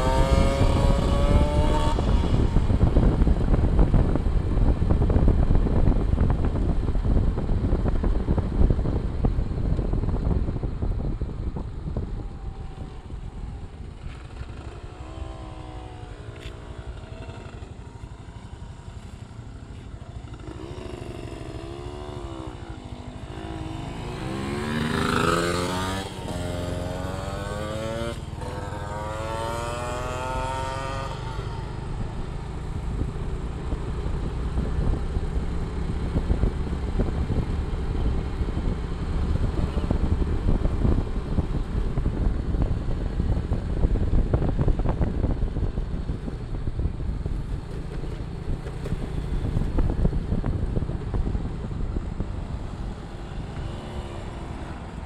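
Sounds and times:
kart engine revving: 0:00.0 - 0:03.3, 0:20.1 - 0:32.6.

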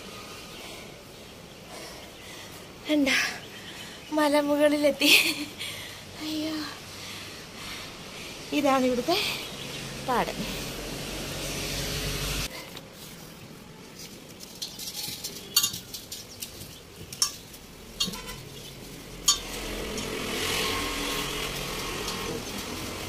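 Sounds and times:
metal gas cylinder clanking: 0:17.1 - 0:20.2.

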